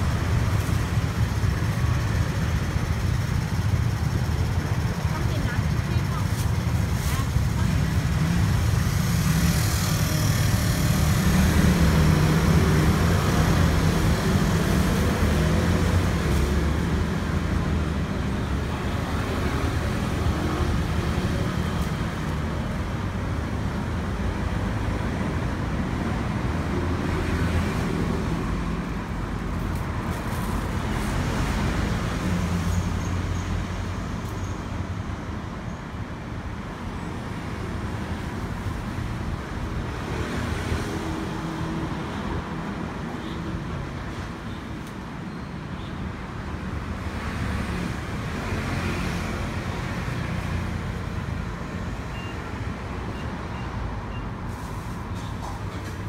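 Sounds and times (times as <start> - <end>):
passing road traffic rumble: 0.0 - 56.0.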